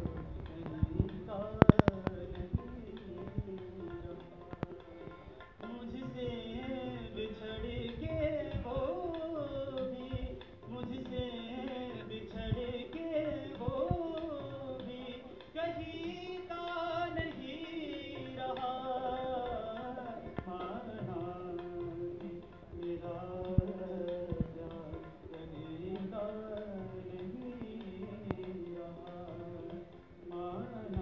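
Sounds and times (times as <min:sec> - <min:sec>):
harmonium: 0:00.0 - 0:31.0
person singing ornamented melody: 0:00.0 - 0:31.0
tabla strokes: 0:00.0 - 0:31.0.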